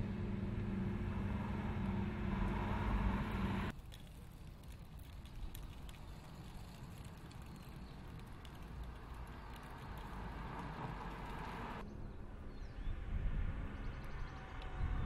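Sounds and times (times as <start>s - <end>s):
car driving by: 0.0s - 3.7s.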